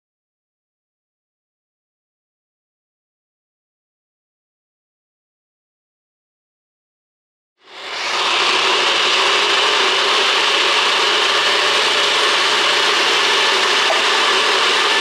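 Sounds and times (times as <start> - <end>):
blender running: 7.6 - 15.0.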